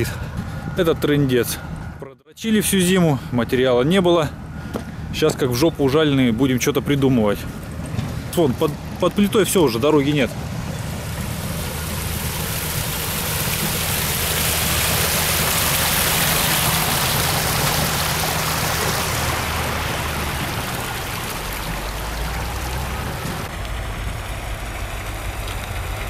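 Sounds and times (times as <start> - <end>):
water rushing: 8.0 - 26.0.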